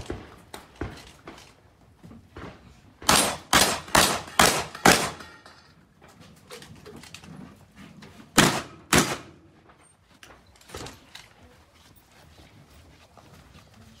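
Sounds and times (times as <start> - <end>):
shotgun shots echoing: 3.0 - 5.4, 8.4 - 9.5.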